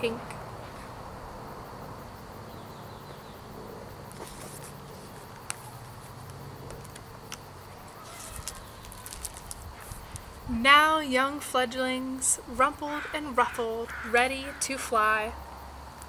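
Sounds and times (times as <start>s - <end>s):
book pages rustling: 4.1s - 10.3s
faint ticks: 4.1s - 10.4s.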